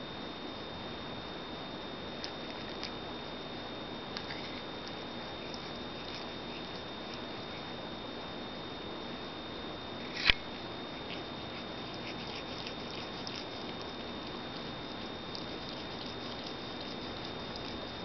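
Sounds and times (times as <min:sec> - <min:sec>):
cat lapping water: 0:11.0 - 0:18.0.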